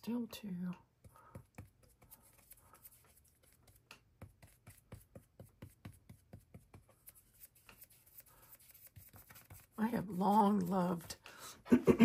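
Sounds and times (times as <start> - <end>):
paintbrush strokes on board: 1.0 - 11.3.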